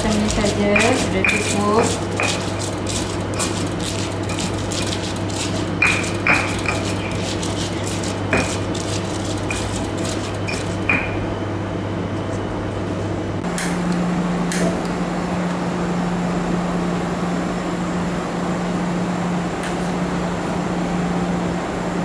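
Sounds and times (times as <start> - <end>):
pestle pounding in stone mortar: 0.0 - 11.2.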